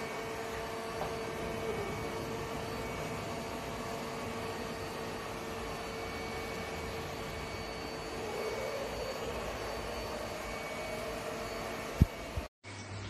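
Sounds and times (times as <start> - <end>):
mopping robot whirring hum: 0.0 - 12.5.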